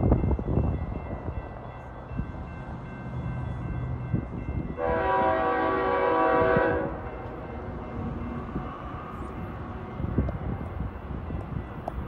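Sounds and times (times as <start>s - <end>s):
locomotive air horn blast: 4.8s - 7.1s.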